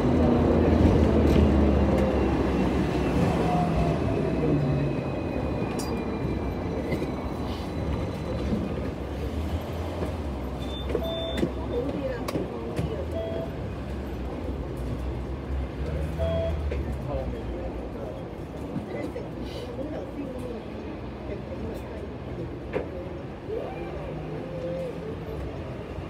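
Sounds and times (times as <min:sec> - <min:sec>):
tram wheels rumbling on rails: 0:00.0 - 0:26.0.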